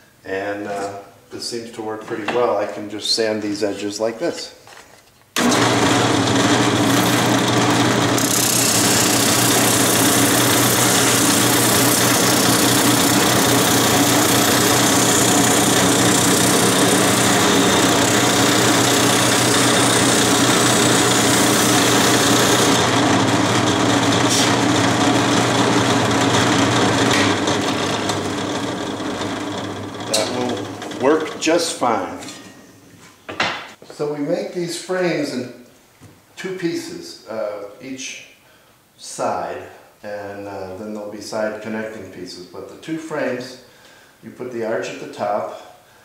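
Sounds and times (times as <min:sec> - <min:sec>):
drill press motor hum: 0:05.4 - 0:31.4
wood sanding hiss: 0:24.2 - 0:24.6.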